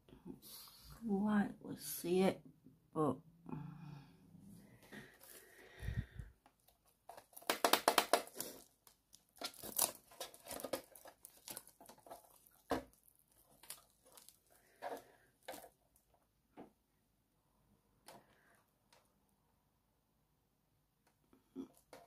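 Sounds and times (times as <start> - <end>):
plastic film crinkling: 6.4 - 16.1.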